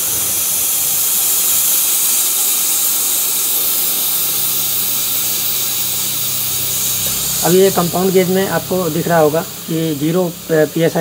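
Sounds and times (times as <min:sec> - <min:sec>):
gas hissing from valve: 0:00.0 - 0:11.0.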